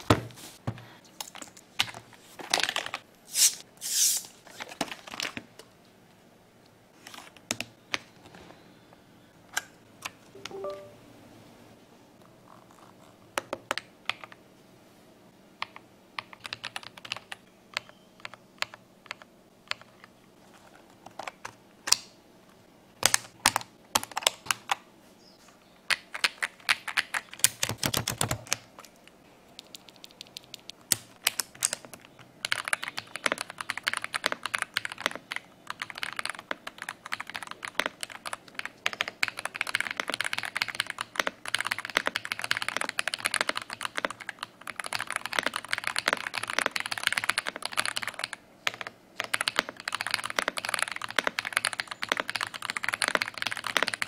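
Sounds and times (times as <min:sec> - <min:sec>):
mechanical keyboard typing: 0:15.6 - 0:19.9, 0:25.9 - 0:28.6, 0:29.6 - 0:54.0.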